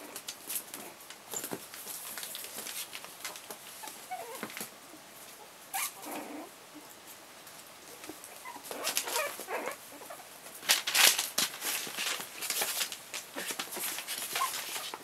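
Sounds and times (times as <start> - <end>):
puppies squeaking and whimpering: 3.8 - 4.5, 5.7 - 6.5, 8.3 - 10.2, 14.3 - 14.9
puppy squealing: 4.1 - 4.4, 5.7 - 6.5, 8.4 - 10.2.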